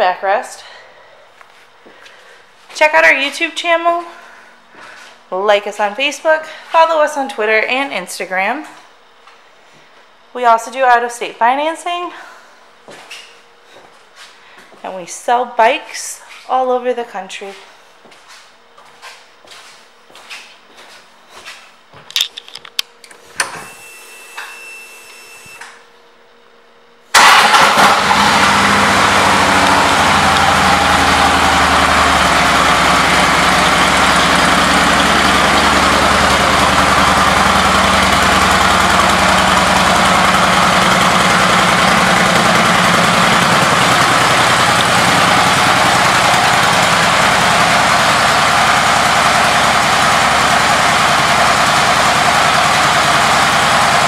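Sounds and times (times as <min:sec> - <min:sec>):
engine starter clicks: 0:27.1 - 0:30.5
starter whine: 0:27.1 - 0:54.0
motorcycle engine idling: 0:27.3 - 0:54.0.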